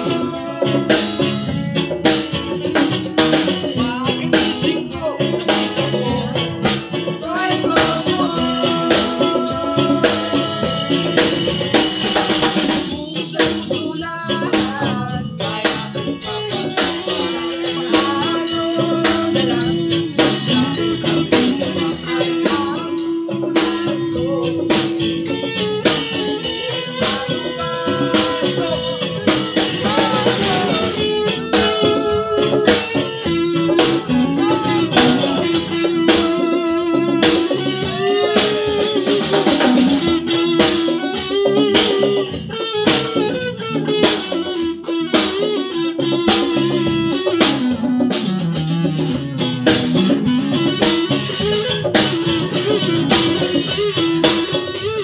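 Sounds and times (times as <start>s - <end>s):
man singing into microphone: 0.0s - 1.7s, 3.5s - 39.5s
electric bass: 0.0s - 55.0s
rattling percussion: 0.0s - 55.0s.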